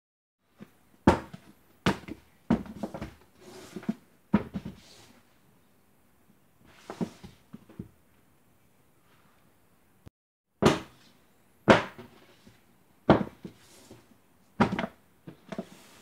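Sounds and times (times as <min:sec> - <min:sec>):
books slapping onto tabletop: 0:01.1 - 0:03.2, 0:14.6 - 0:14.9
books rustling and brushing: 0:02.5 - 0:05.3, 0:06.6 - 0:07.8, 0:13.2 - 0:16.0.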